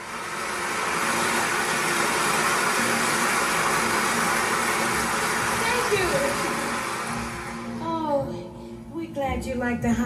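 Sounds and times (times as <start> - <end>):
audience applause: 0.0 - 7.8.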